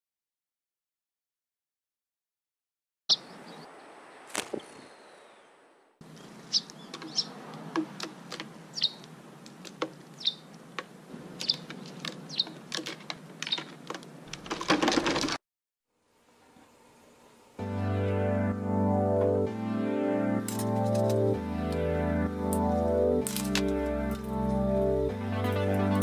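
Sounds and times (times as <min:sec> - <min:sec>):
sparrows chirping: 0:03.1 - 0:13.8.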